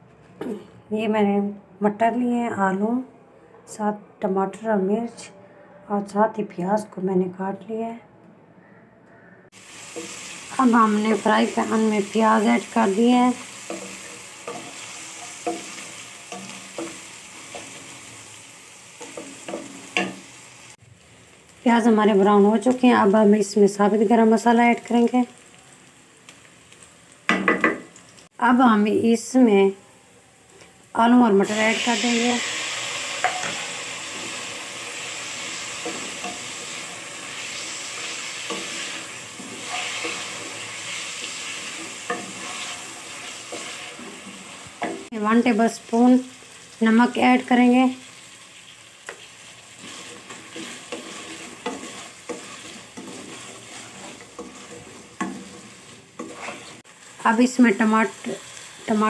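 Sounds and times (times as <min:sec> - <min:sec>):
onions sizzling in oil: 0:09.5 - 0:59.0
spatula scraping a pan: 0:13.4 - 0:18.1, 0:31.8 - 0:45.1, 0:49.1 - 0:56.8.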